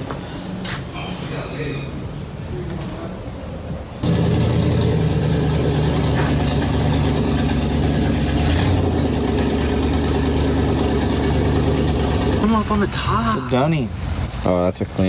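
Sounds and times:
engine idling: 0:04.0 - 0:13.5.

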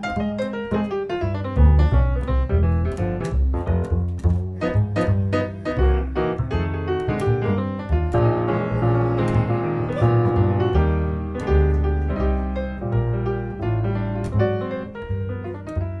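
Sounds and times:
double bass: 0:00.0 - 0:16.0
jazz piano: 0:00.0 - 0:16.0.

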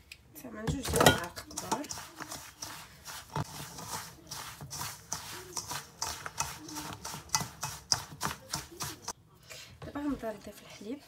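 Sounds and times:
hands rubbing semolina in bowl: 0:01.5 - 0:09.2.

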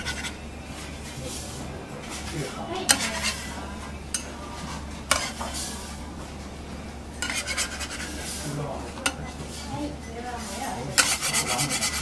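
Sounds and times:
spatulas scraping on griddle: 0:00.0 - 0:00.4, 0:01.3 - 0:03.6, 0:04.6 - 0:06.0, 0:07.2 - 0:09.7, 0:10.3 - 0:12.0
steady low hum: 0:00.0 - 0:12.0.

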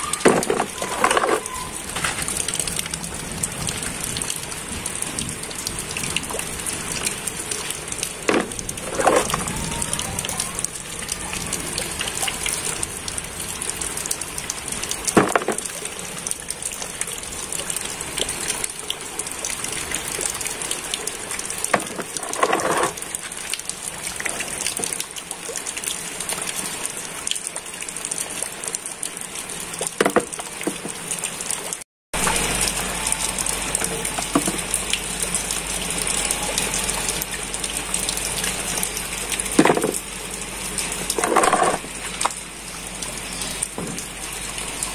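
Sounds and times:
running water and rain: 0:00.0 - 0:44.9
rubber toys knocking: 0:00.3 - 0:01.4, 0:08.3 - 0:09.4, 0:15.2 - 0:15.6, 0:30.0 - 0:30.9.

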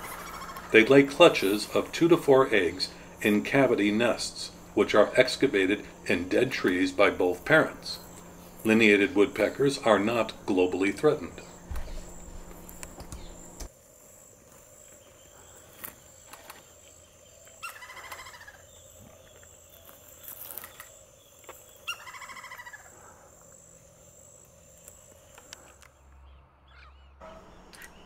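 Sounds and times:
woodpecker laughing calls: 0:00.0 - 0:08.1, 0:17.6 - 0:18.9, 0:21.8 - 0:23.0
thin steady whine: 0:00.0 - 0:26.1, 0:27.2 - 0:28.0.

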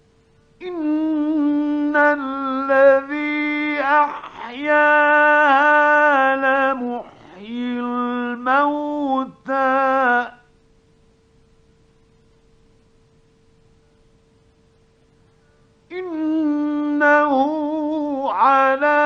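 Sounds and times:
faint recording hum: 0:00.0 - 0:19.0
man chanting melodically: 0:00.6 - 0:10.4, 0:15.9 - 0:19.0.

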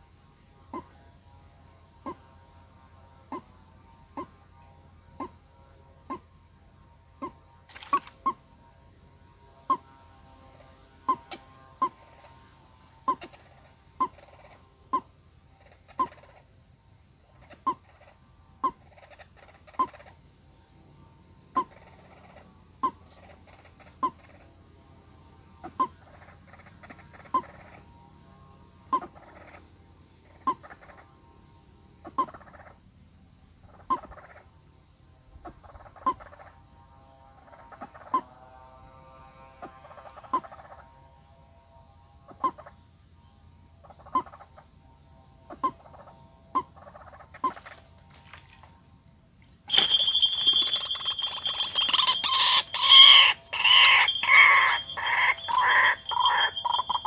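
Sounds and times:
waterhen sharp calls: 0:49.7 - 0:57.0.

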